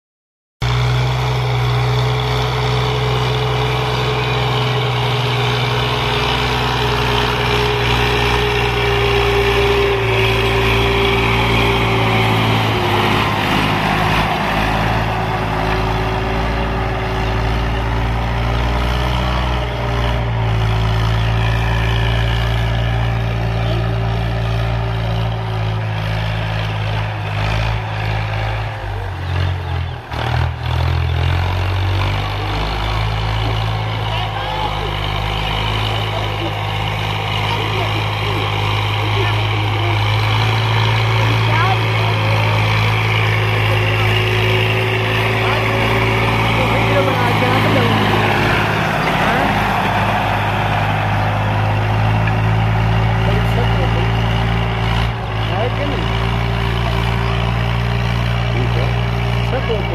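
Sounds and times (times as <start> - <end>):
tractor diesel engine running: 0.6 - 59.9.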